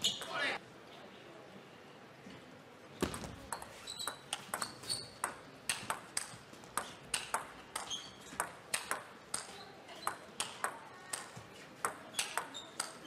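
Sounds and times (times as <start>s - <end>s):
table tennis ball clicking: 3.1s - 13.0s.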